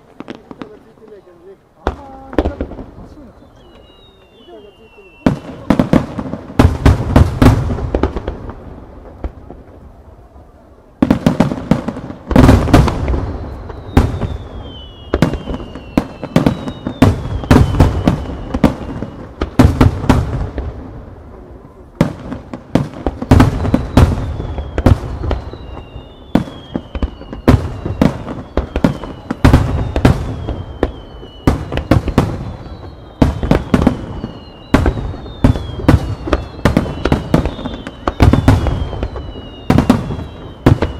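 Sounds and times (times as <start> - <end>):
fireworks bangs: 0.0 - 40.9
firework whistles falling in pitch: 2.4 - 6.0, 12.4 - 19.6, 23.3 - 40.9.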